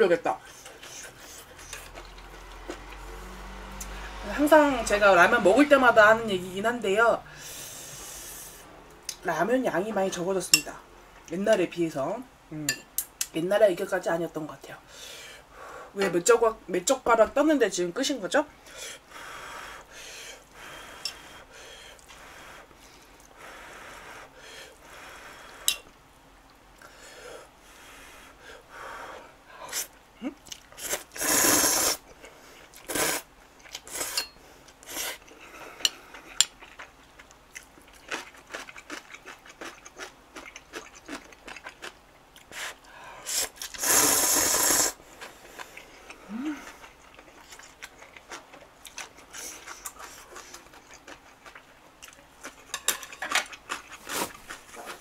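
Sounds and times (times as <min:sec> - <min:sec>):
soft chewing: 0:00.4 - 0:03.0, 0:29.8 - 0:31.0, 0:32.0 - 0:43.8, 0:45.1 - 0:55.0
slurping noodles: 0:30.8 - 0:32.0, 0:42.5 - 0:45.0.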